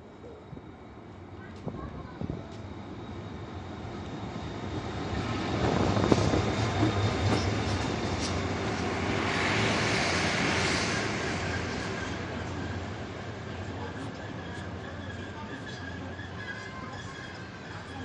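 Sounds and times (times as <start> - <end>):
diesel locomotive engine hum: 0.0 - 18.0
train wheel clatter: 5.6 - 9.0.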